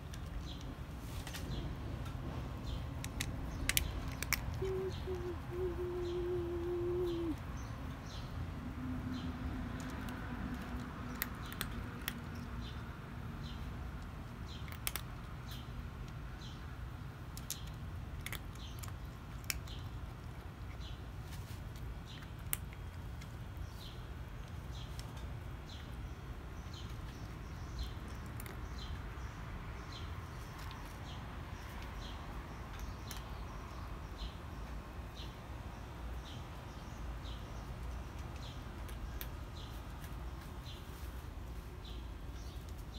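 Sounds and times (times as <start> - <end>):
bird chirping: 2.6 - 8.4
cat crunching dry kibble: 2.8 - 5.4, 9.6 - 13.2, 13.9 - 16.3, 17.1 - 25.6, 26.4 - 29.2, 30.3 - 31.0.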